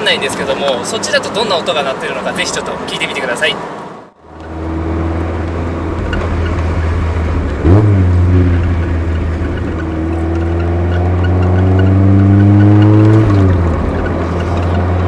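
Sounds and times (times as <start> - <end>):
car engine revving: 3.7 - 15.0.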